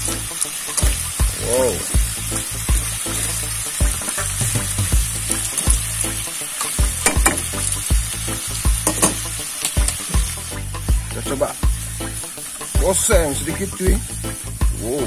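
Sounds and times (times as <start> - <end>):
vegetables sizzling in wok: 0.0 - 15.0
metal tongs clacking on pan: 6.6 - 7.6, 8.8 - 10.1.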